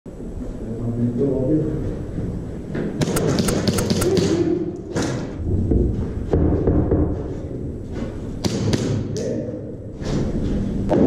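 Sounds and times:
airsoft pistol shots: 0:03.0 - 0:04.5.

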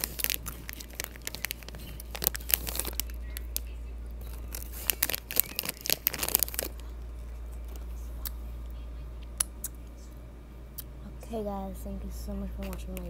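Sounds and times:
chip bag crinkling: 0:00.0 - 0:07.9.

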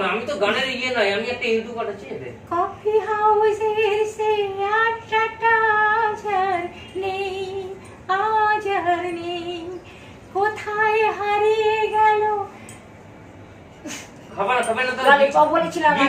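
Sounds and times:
woman singing unaccompanied: 0:02.5 - 0:12.6.

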